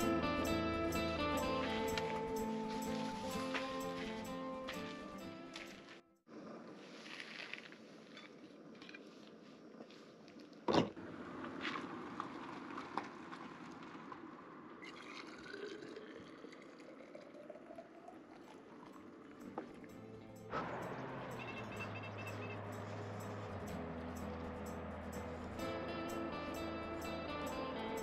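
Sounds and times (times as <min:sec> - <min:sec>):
liquid pouring and splashing: 0:14.8 - 0:19.8.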